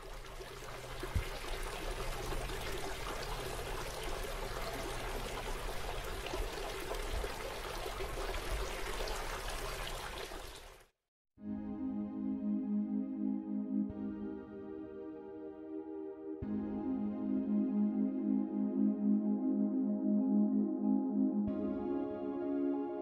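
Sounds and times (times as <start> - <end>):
fountain water splashing: 0.0 - 10.8.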